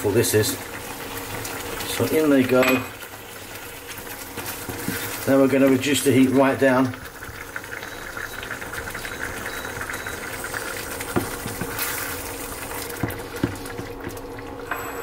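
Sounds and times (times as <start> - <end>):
curry bubbling in a pan: 0.0 - 14.7.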